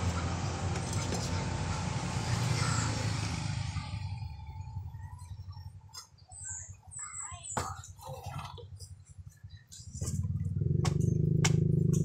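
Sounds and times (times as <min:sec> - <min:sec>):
passing vehicle engine: 0:00.0 - 0:05.6, 0:10.0 - 0:12.0.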